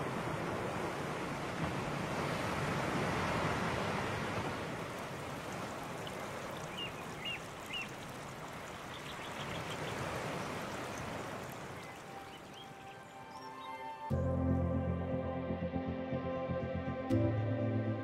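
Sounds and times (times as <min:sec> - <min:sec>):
fountain water splashing: 0:04.1 - 0:13.2.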